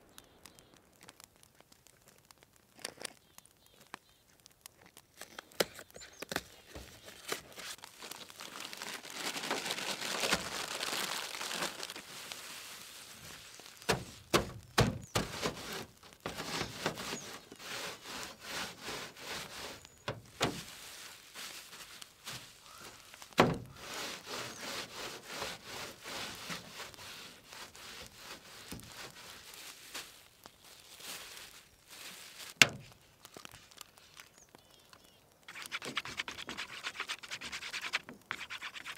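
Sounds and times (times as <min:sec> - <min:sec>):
crackers crunching in plastic bag: 0:00.0 - 0:38.7
plastic sleeve crinkling: 0:00.0 - 0:38.9.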